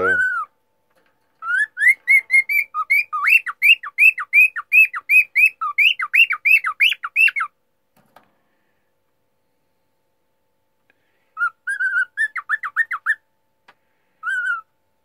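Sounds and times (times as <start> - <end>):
cockatiel whistling: 0.0 - 0.5, 1.4 - 7.5, 11.4 - 13.2, 14.2 - 14.7.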